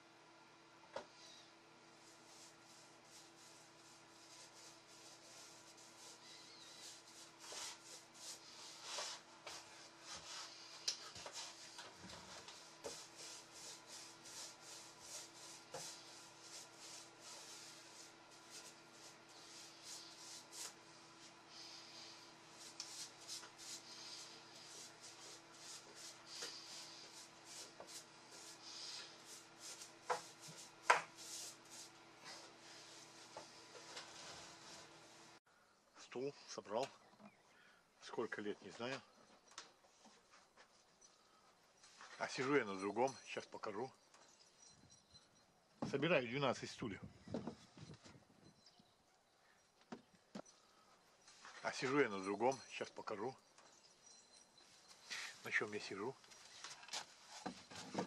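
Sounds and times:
brush rubbing in short strokes: 2.0 - 35.2
paintbrush swishing on wood: 2.0 - 35.2.

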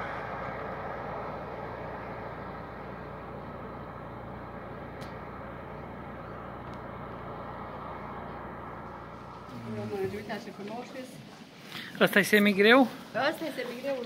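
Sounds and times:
road traffic noise: 0.0 - 14.0.

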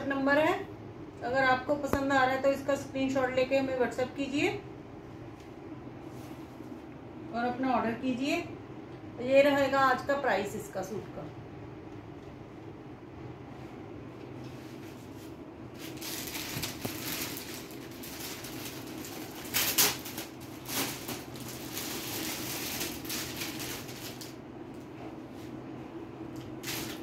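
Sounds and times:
steady low hum: 0.0 - 27.0
fabric and paper cards rustling: 14.3 - 25.6.

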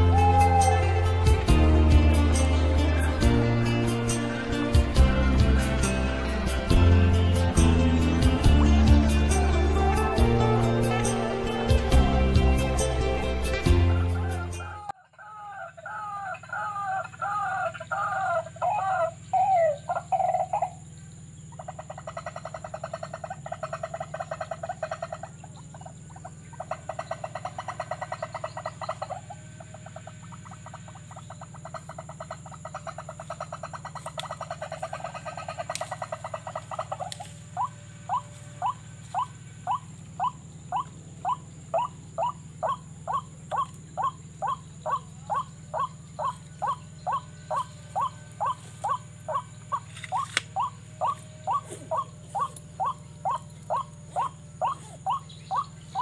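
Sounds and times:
bird rising kru-ak notes: 0.0 - 56.0
bird rattling trill: 16.2 - 56.0.

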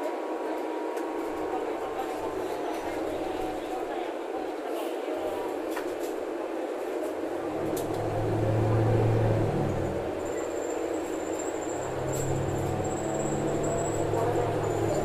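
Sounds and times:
bus road and engine noise: 0.8 - 4.0, 5.2 - 15.0.

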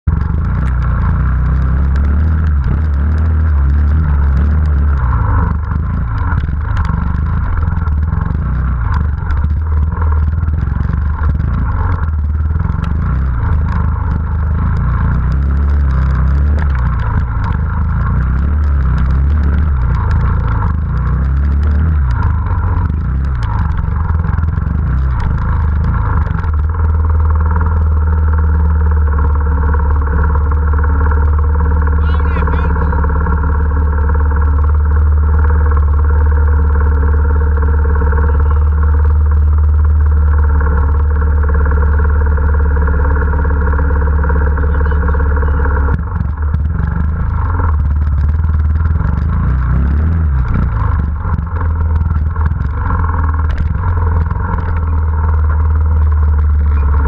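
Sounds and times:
motorcycle engine running: 0.0 - 57.0
knocks and rattles on rock: 0.1 - 31.5, 45.7 - 57.0.

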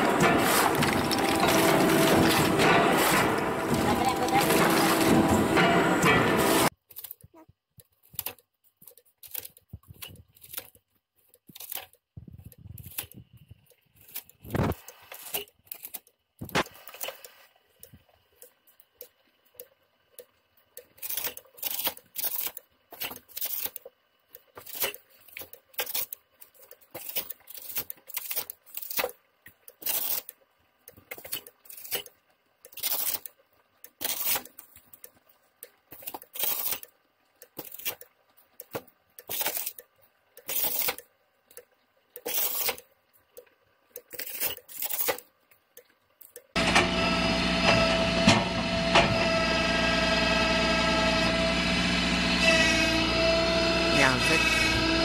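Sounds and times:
branch chipper crunching chops: 0.0 - 6.7, 53.1 - 55.0
faint motor hum: 0.0 - 6.7, 46.5 - 55.0
firewood processor engine running: 0.0 - 6.7, 46.6 - 55.0.

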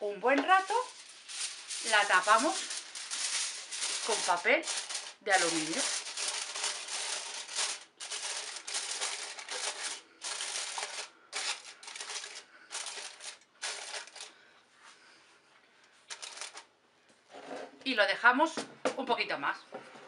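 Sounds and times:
aluminium foil crinkling: 0.0 - 14.5, 16.1 - 16.7.

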